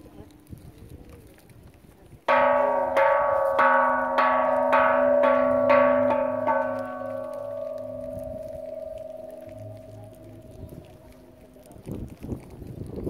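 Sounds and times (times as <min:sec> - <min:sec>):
bell chime strikes: 0:02.3 - 0:10.5.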